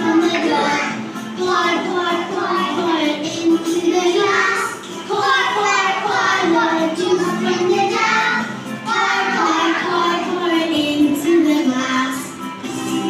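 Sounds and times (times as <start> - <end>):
children singing: 0.0 - 13.0
music: 0.0 - 13.0.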